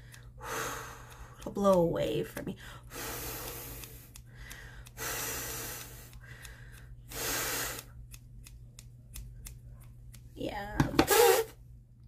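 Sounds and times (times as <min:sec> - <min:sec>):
scissors snipping hair: 0:00.9 - 0:02.6, 0:03.4 - 0:05.0, 0:05.6 - 0:10.8.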